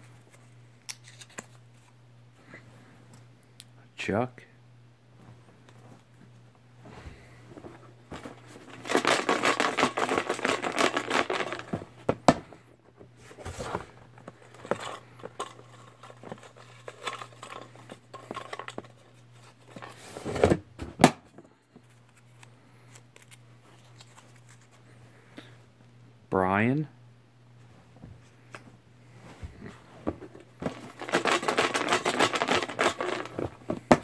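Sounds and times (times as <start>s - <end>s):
paper rustling and crinkling: 0.0s - 2.0s, 7.6s - 11.9s, 21.8s - 24.8s, 30.2s - 34.0s.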